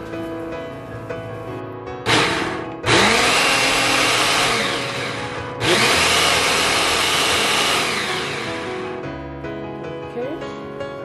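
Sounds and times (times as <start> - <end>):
blender whirring: 2.1 - 9.0.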